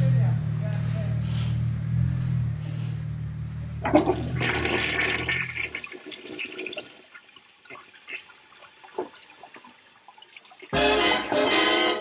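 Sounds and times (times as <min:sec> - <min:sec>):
low engine hum: 0:00.0 - 0:04.6
toilet flushing: 0:03.8 - 0:11.9.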